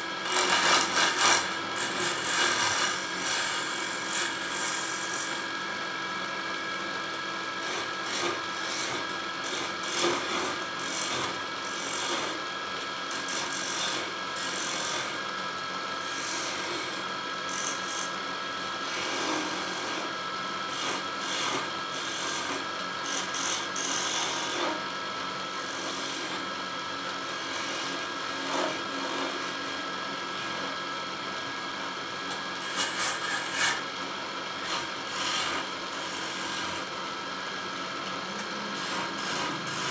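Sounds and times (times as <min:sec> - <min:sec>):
chisel scraping spinning wood: 0:00.0 - 0:05.8, 0:07.6 - 0:12.4, 0:16.1 - 0:18.2, 0:32.3 - 0:33.9, 0:34.6 - 0:36.9, 0:38.3 - 0:39.9
wood lathe hum: 0:00.0 - 0:39.9.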